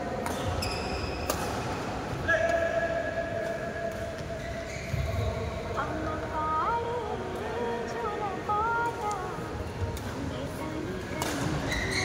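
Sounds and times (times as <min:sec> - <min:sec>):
racket hitting shuttlecock: 0:00.2 - 0:01.7, 0:11.2 - 0:11.9
shoe squeak: 0:00.4 - 0:01.3, 0:04.3 - 0:05.6, 0:11.6 - 0:12.0.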